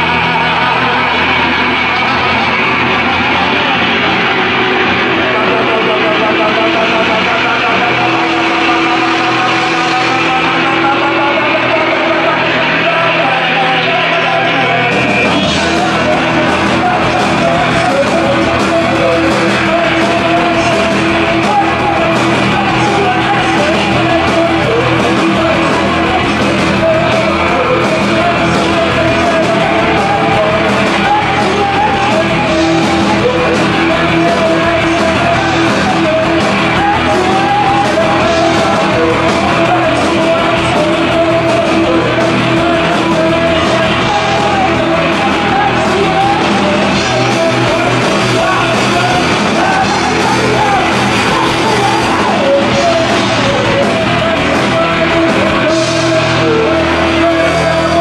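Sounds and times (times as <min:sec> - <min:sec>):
drums beating: 0:00.0 - 0:58.0
electric guitar: 0:00.0 - 0:58.0
person singing and yelling: 0:00.0 - 0:58.0.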